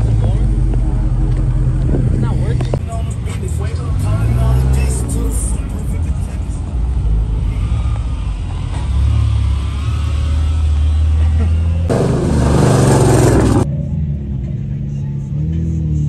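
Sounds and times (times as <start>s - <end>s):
car engines rumbling past: 0.0s - 16.0s
loud exhaust burst: 11.9s - 13.7s.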